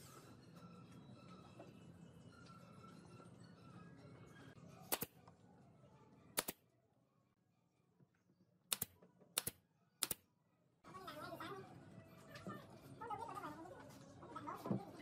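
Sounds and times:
nail gun firing into wood: 4.9 - 5.1, 6.4 - 6.6.

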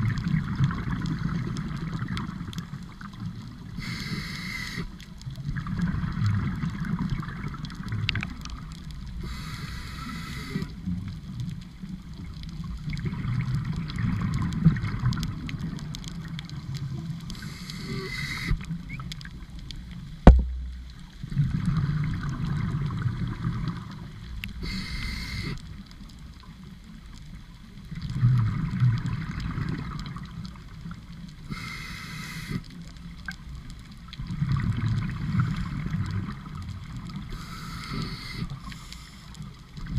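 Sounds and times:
regulator hissing inhale: 3.8 - 5.0, 9.2 - 10.8, 17.3 - 18.7, 24.6 - 25.7, 31.5 - 32.8, 37.3 - 39.5
sharp knock: 20.2 - 20.5.

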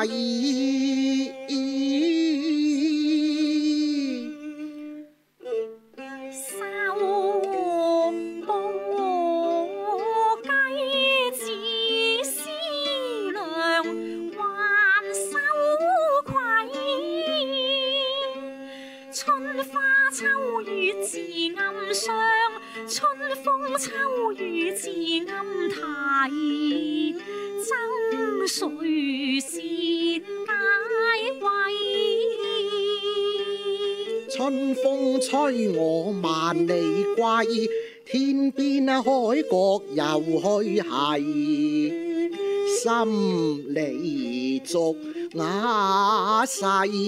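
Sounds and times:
erhu playing: 0.0 - 47.0
plucked lute: 0.0 - 47.0
woman singing slow melody: 6.4 - 18.4, 19.2 - 34.5.

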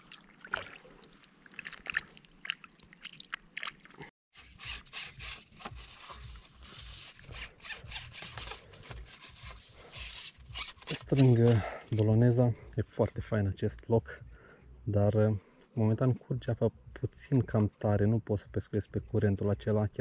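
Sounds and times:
hands rubbing on fishing rod: 4.4 - 12.1.

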